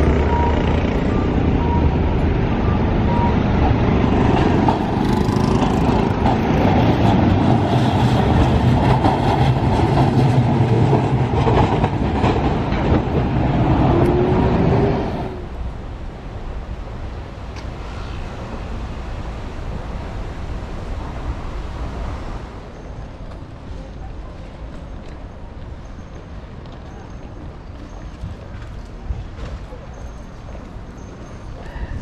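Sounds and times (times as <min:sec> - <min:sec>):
cars passing: 0:00.0 - 0:32.0
tram wheels clicking over rail joints: 0:03.1 - 0:15.7, 0:23.0 - 0:32.0.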